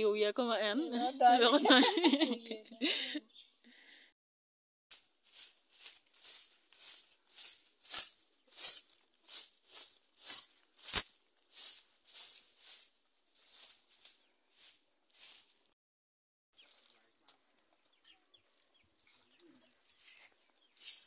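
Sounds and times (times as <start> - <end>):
broom sweeping earth: 4.9 - 15.8, 16.6 - 21.0.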